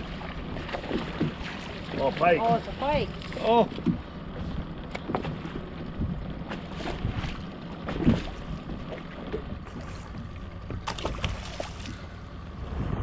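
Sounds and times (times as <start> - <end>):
knocks and thump in a boat: 0.0 - 12.1
low wind rumble: 0.0 - 13.0
fish splashing in a net: 10.8 - 12.0.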